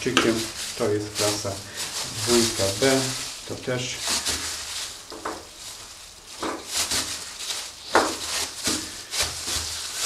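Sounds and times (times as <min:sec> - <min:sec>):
knife scraping pork fat: 0:06.5 - 0:10.0.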